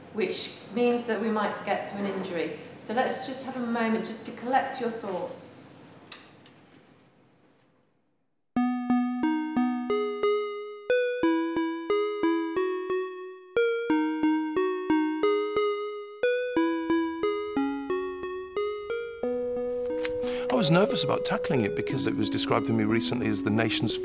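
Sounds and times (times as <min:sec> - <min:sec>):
synthesizer melody: 0:08.6 - 0:24.0.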